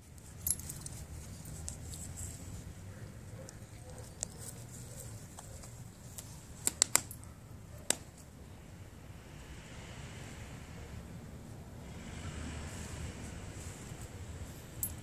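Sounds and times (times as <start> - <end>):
low outdoor rumble: 0.1 - 15.0
dog collar clinking: 0.4 - 1.6, 14.8 - 15.0.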